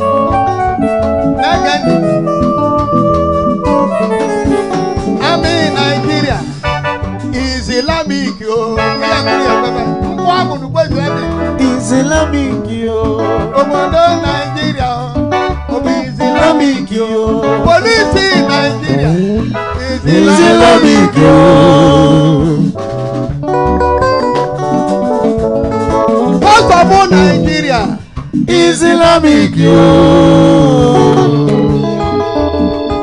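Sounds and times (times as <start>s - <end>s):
drum kit: 0.0s - 33.0s
live band music: 0.0s - 33.0s
man singing into microphone: 5.2s - 6.6s, 7.3s - 22.8s, 26.3s - 32.4s.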